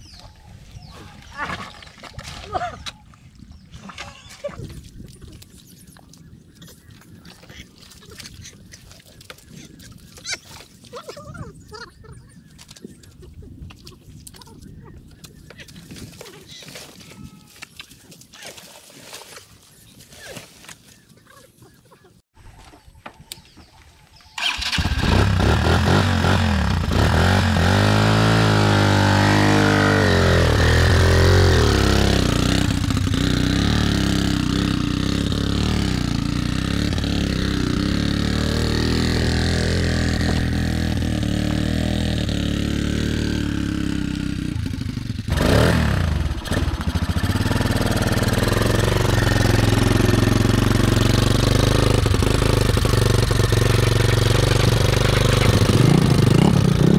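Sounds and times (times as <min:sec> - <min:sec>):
motorcycle engine revving: 0:24.4 - 0:56.9.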